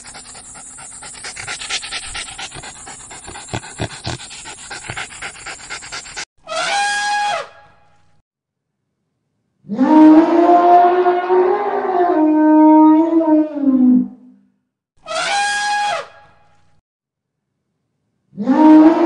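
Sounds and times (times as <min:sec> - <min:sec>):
dog panting rapidly: 0:00.0 - 0:06.3.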